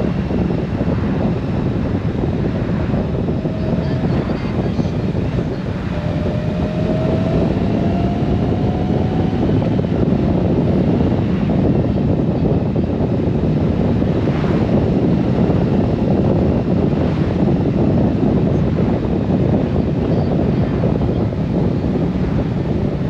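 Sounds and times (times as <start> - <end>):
motorcycle engine: 0.0 - 11.7
road noise: 0.0 - 23.0
wind buffeting microphone: 0.0 - 23.0.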